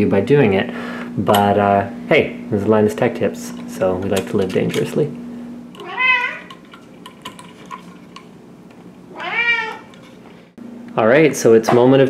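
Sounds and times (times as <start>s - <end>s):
cat meowing: 5.8s - 6.5s, 9.1s - 9.9s.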